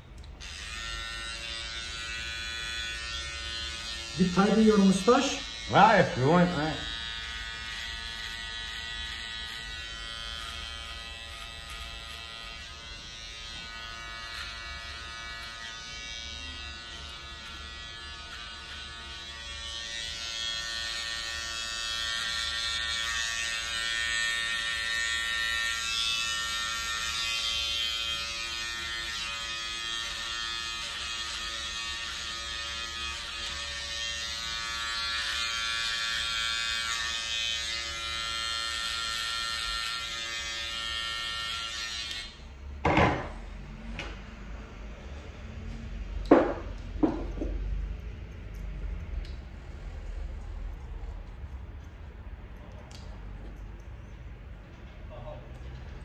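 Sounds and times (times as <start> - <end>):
electric clipper buzzing: 0.2 - 42.4.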